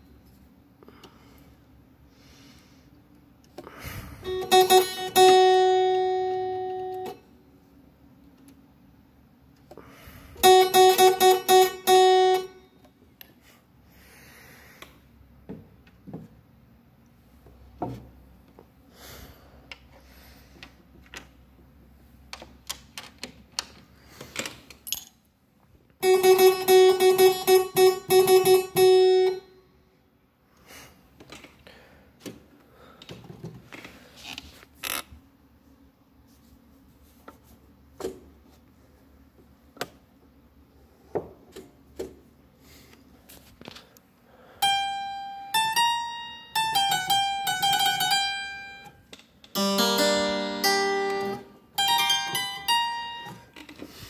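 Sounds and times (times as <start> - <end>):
harpsichord note plucked: 4.3 - 7.2, 10.4 - 12.6, 26.0 - 29.5, 44.6 - 48.9, 49.6 - 53.5.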